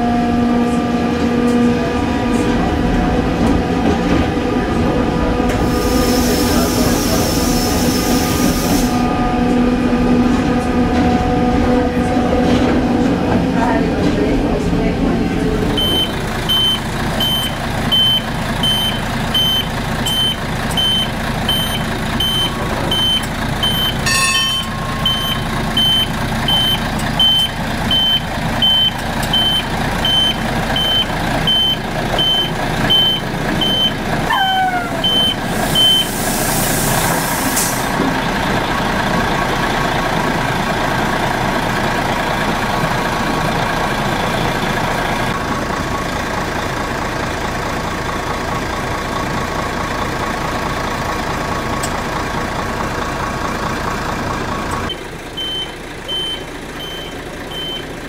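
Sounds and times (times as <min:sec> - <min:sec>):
railcar running noise: 0:00.0 - 0:58.0
air hiss: 0:05.6 - 0:09.0
short high warning beeps: 0:15.8 - 0:33.9, 0:55.4 - 0:57.9
metal clank: 0:24.0 - 0:25.4.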